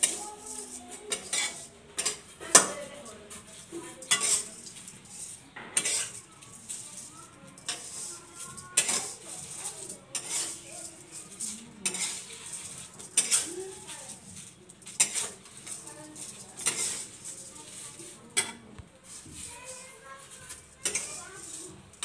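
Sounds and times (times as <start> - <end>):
metal spatula scraping a metal pan: 0.0 - 22.0.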